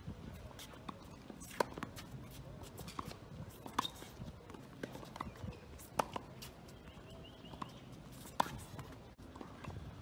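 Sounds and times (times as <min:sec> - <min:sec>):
tennis ball bouncing on court: 0:00.6 - 0:09.8.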